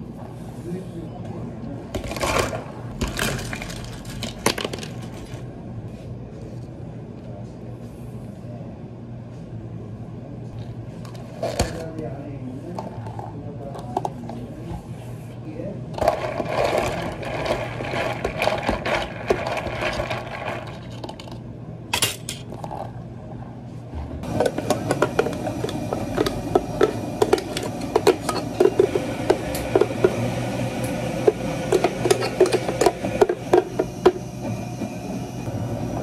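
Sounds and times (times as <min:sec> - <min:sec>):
machine hum: 0:15.1 - 0:36.0
thick drink pouring: 0:16.0 - 0:21.0
plastic cup and lid clatter: 0:24.3 - 0:30.2, 0:31.2 - 0:34.2
jar and spatula knocks and scrapes: 0:31.2 - 0:34.2.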